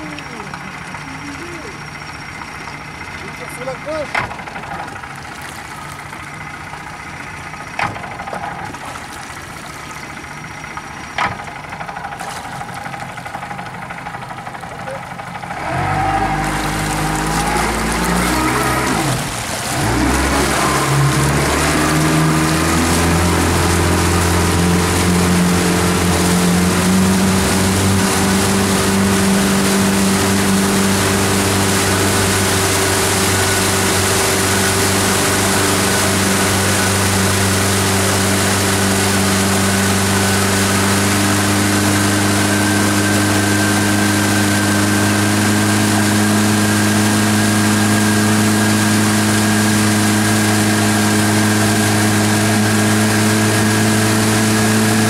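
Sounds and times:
motorboat engine: 0:00.0 - 0:55.0
rush of wake and wind: 0:15.5 - 0:55.0.

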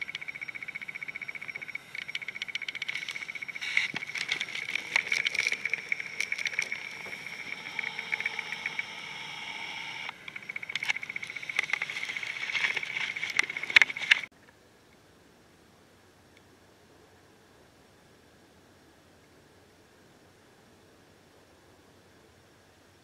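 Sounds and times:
clicks and rustles: 0:00.0 - 0:09.0, 0:10.2 - 0:14.3
insects chirping: 0:00.0 - 0:14.3.

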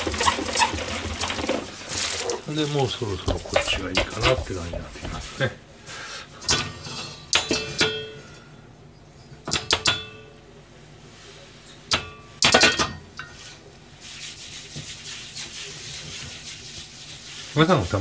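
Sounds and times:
rasping hiss of wok wiped: 0:13.5 - 0:18.0.

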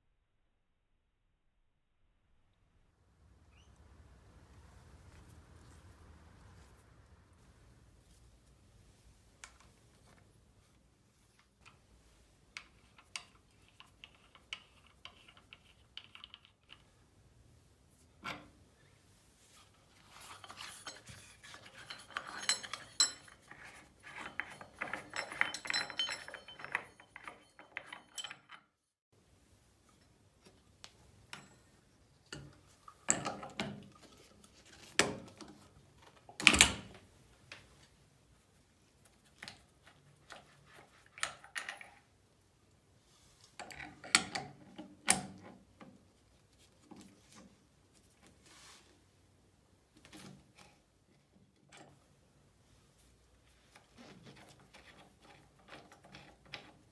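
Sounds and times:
metal tap cover rattling and scraping: 0:20.1 - 0:28.7, 0:54.0 - 0:56.9
metallic clicks and clinks: 0:20.4 - 0:28.8.

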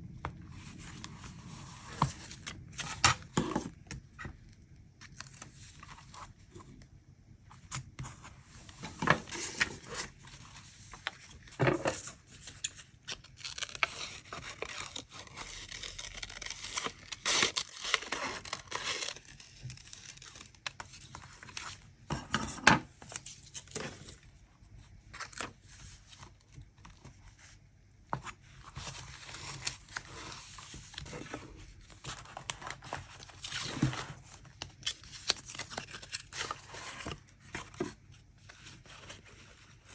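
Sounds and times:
paper crinkling and scraping: 0:07.5 - 0:24.3, 0:25.1 - 0:39.9
paper and stickers rustling: 0:25.1 - 0:39.9.

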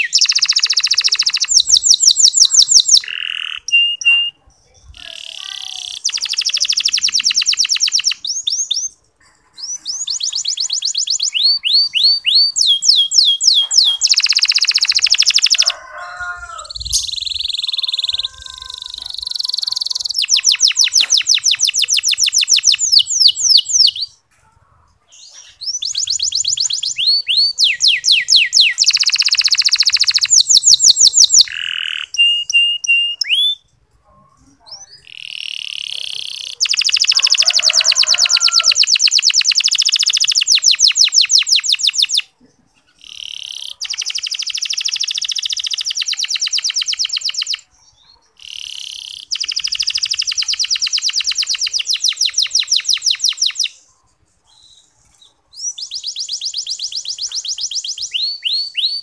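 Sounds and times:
canary whistled notes: 0:00.0 - 0:04.4, 0:25.8 - 0:33.6
canary trilling: 0:00.0 - 0:33.8, 0:34.7 - 0:53.9, 0:54.5 - 0:59.0.

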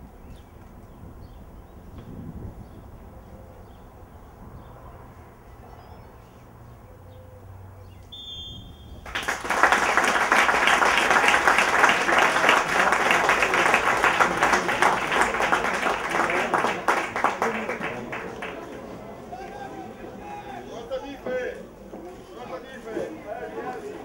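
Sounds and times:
brief high whistle: 0:08.1 - 0:09.0
crowd applause: 0:09.0 - 0:20.8.

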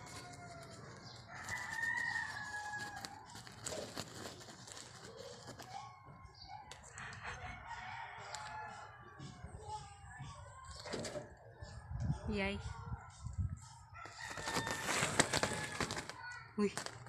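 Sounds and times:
rooster crowing: 0:00.0 - 0:03.4, 0:07.0 - 0:09.4, 0:14.0 - 0:16.0
faint rooster calls: 0:00.0 - 0:09.4, 0:14.0 - 0:16.2.

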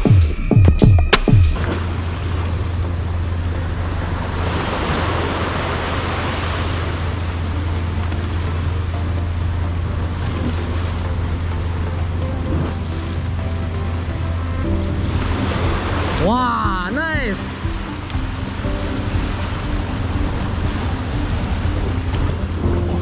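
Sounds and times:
waves washing against rocks: 0:15.0 - 0:22.7.

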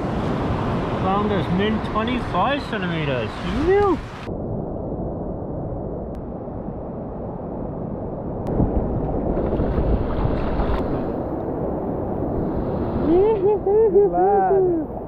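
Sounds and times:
shallow surf washing: 0:00.0 - 0:04.3, 0:09.2 - 0:15.0
wind rumbling on microphone: 0:00.0 - 0:15.0.

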